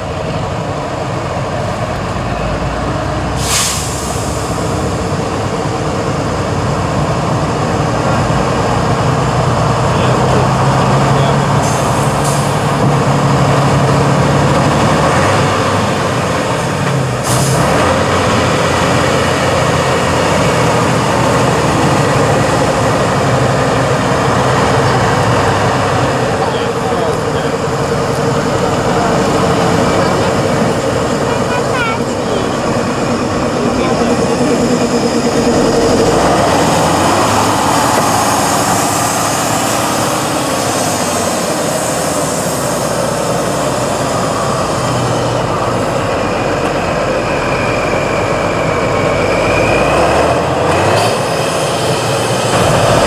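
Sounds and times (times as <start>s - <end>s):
truck diesel engine under load: 0.0s - 53.0s
air brake hisses: 3.4s - 4.6s.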